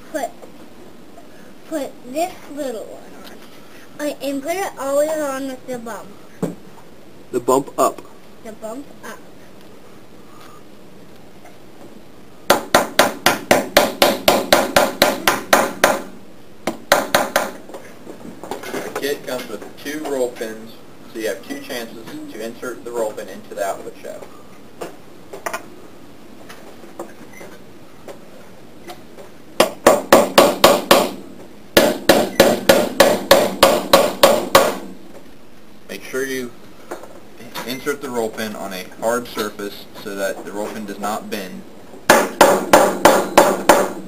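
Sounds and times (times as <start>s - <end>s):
hammer tapping on metal: 12.5s - 16.1s, 16.7s - 17.6s, 29.6s - 31.2s, 31.8s - 34.9s, 42.1s - 44.0s.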